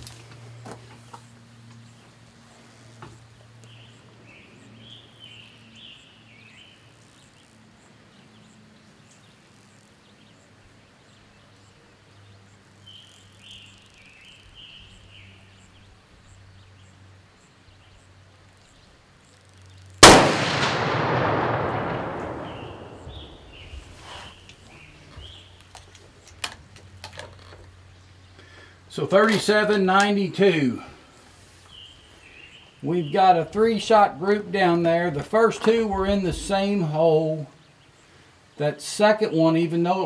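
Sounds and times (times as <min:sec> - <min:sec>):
birds chirping: 0:00.0 - 0:40.0
rifle shot with echo: 0:20.0 - 0:24.3.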